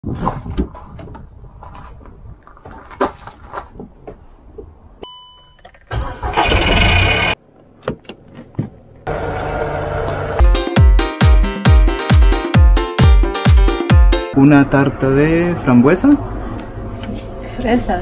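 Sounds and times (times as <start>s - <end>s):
short beep: 5.0s - 5.7s
vehicle engine running: 6.4s - 7.4s, 9.1s - 10.5s.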